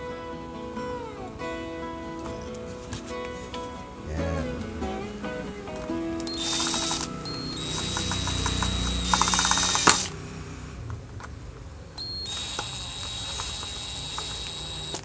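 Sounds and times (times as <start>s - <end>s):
cordless drill whining: 6.2s - 10.2s, 12.0s - 15.0s
drill clutch click: 6.2s - 10.2s, 12.0s - 15.0s.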